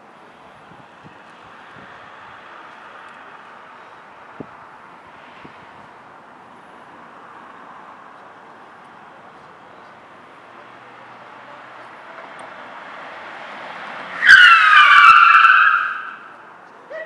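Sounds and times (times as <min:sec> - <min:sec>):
police car approaching: 0:00.0 - 0:17.0
tyres screeching: 0:13.6 - 0:16.3.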